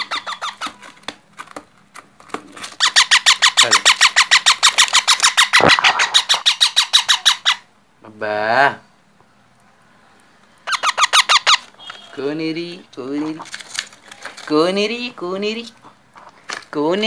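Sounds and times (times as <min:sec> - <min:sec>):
parakeet squawking: 0:00.0 - 0:00.8, 0:02.8 - 0:07.7, 0:10.6 - 0:12.2.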